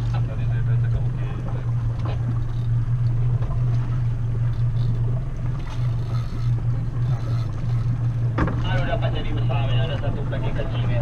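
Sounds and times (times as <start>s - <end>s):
boat engine droning: 0.0s - 11.0s
water and hull noise: 0.0s - 11.0s.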